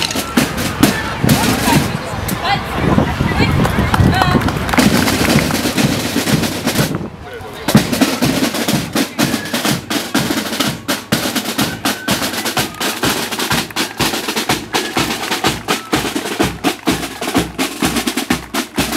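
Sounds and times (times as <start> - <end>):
faint flutes: 7.2 - 18.9
side drums beating fast: 7.7 - 18.9.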